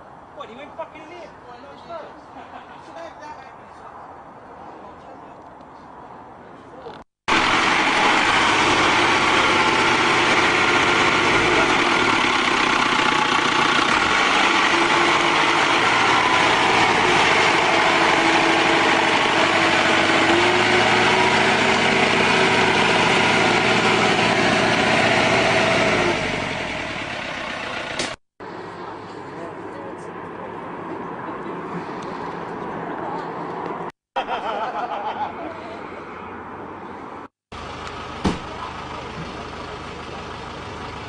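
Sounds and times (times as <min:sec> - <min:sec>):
engine droning under load: 0:07.3 - 0:33.9, 0:35.4 - 0:41.0.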